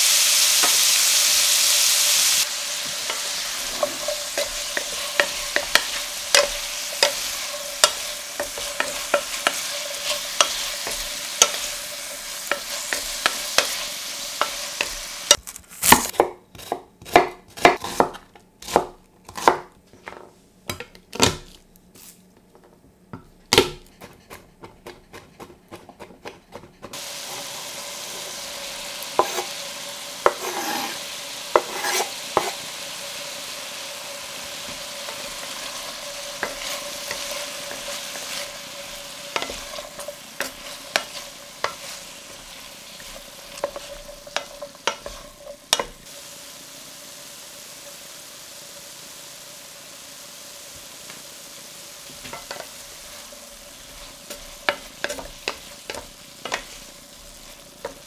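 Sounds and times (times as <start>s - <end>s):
food sizzling in pan: 0.0s - 19.7s, 26.9s - 58.0s
spoon scraping steel pan: 3.1s - 11.8s, 29.2s - 29.6s, 30.2s - 32.6s, 35.1s - 46.0s
knife chopping on wooden board: 15.8s - 19.7s.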